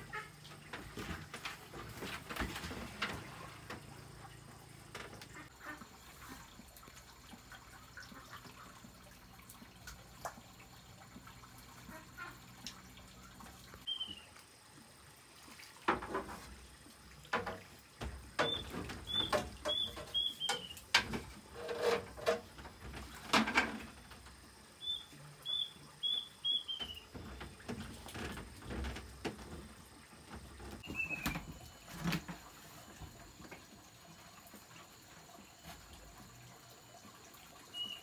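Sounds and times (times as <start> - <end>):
small bird chirping: 13.8 - 14.3, 18.4 - 20.8, 24.8 - 27.1, 30.8 - 31.4.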